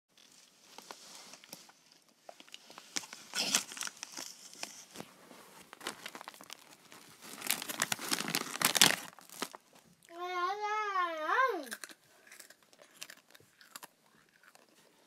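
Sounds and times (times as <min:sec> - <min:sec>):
snack bag crinkling: 0:00.2 - 0:05.0, 0:05.6 - 0:09.8, 0:11.6 - 0:15.0.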